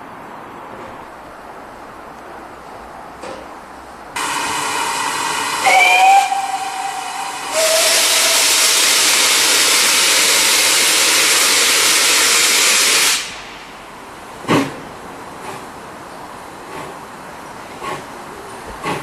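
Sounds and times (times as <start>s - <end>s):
steam locomotive whistle blast: 4.2s - 13.4s
steam hissing from locomotive: 4.2s - 14.8s, 16.6s - 19.0s.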